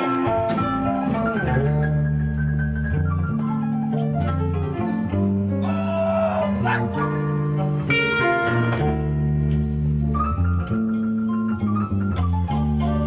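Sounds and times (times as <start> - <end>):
held higher note: 5.6 - 7.0.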